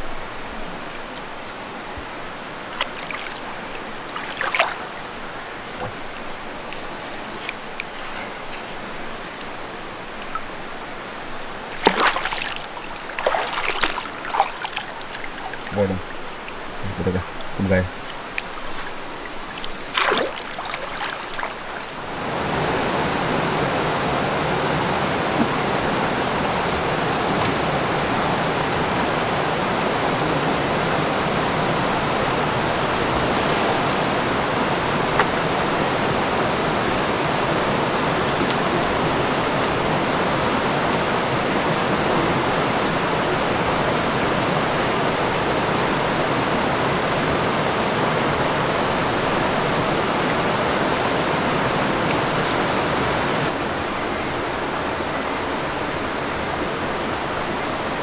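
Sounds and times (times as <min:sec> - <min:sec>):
high steady hum: 0:00.0 - 0:41.7
river rushing over rocks: 0:00.0 - 0:58.0.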